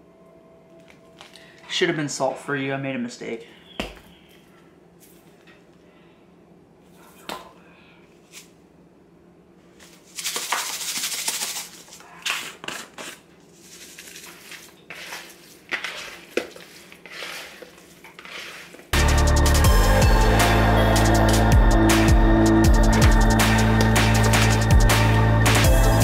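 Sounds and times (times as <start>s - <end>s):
seasoning shaker rattling: 10.0s - 12.0s
shaker bottles clicking and tapping: 10.2s - 12.5s
hands working chicken in bowl: 10.2s - 19.0s.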